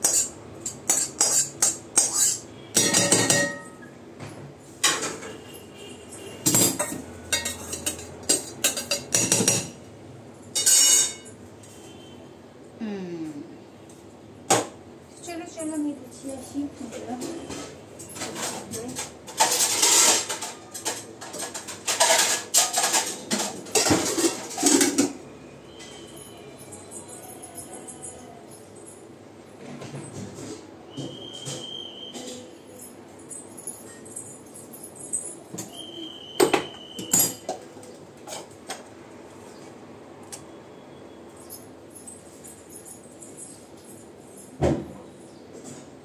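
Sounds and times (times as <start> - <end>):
metal utensil scraping steel pot: 0.0 - 3.9, 19.4 - 25.1.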